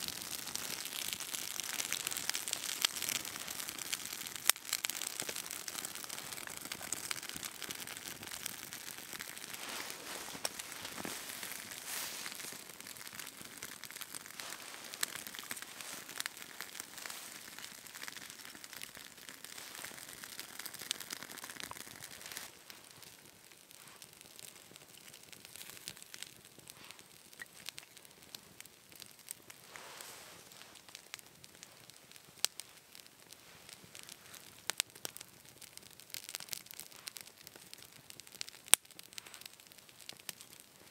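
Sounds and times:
kindling fire crackling: 0.0s - 40.9s
soft hiss: 9.4s - 13.3s, 20.8s - 35.0s.

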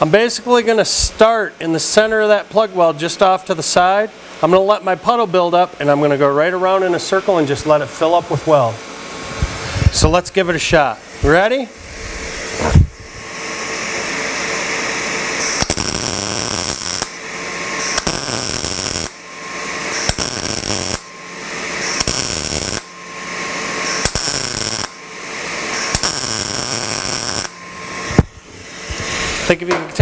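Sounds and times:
welder arc crackling and hissing: 7.2s - 30.0s.

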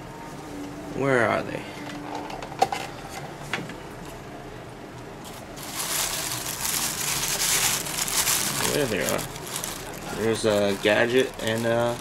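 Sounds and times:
tissue paper crinkling: 5.3s - 12.0s.

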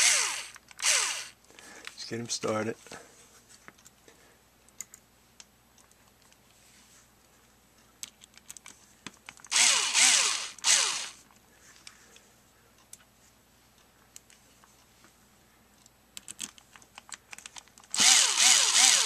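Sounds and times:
cordless drill driving screw: 0.0s - 1.4s, 9.5s - 11.2s, 17.9s - 19.0s
small parts clicking: 0.0s - 2.0s, 8.0s - 11.2s, 15.8s - 19.0s.

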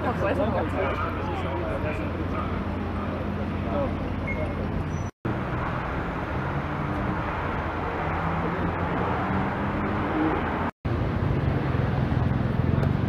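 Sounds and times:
road traffic: 0.0s - 13.0s.

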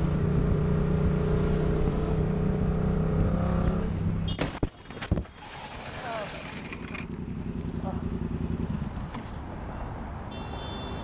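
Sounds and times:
motorcycle engine running: 6.5s - 9.0s.

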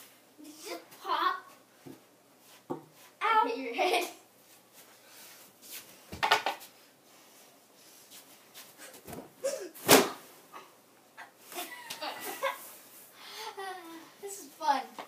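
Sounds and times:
body landing on bed thumps: 9.1s - 10.2s.

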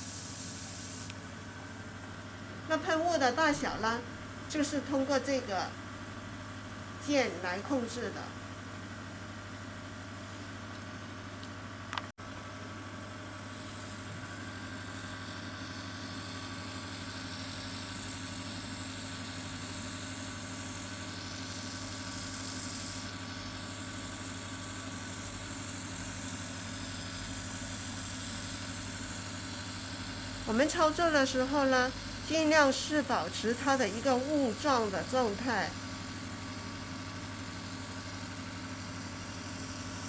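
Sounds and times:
air compressor humming: 0.0s - 40.0s.

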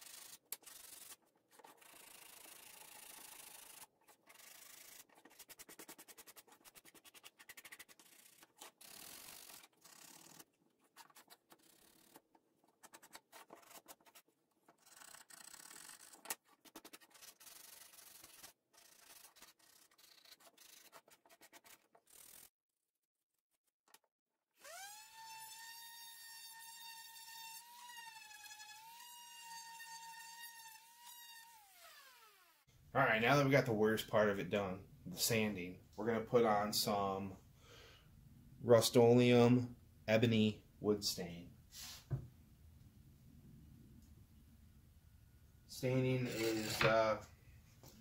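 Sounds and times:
sandpaper rubbing on wood: 1.7s - 10.4s, 16.7s - 22.5s.

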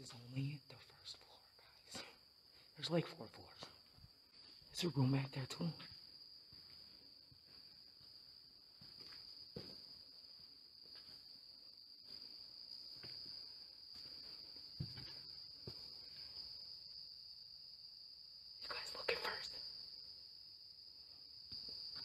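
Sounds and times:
crickets trilling: 0.0s - 22.0s
footsteps on concrete floor: 3.6s - 4.7s, 5.8s - 16.4s.

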